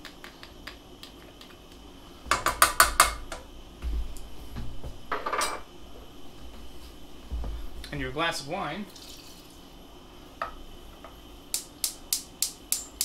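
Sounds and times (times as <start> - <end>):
dull thump: 3.8 - 5.0, 7.2 - 7.8.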